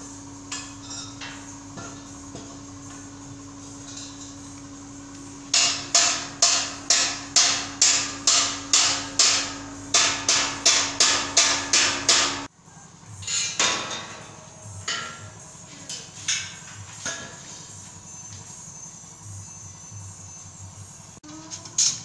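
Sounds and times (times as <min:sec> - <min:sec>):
hammer blows ringing: 0:05.5 - 0:12.5.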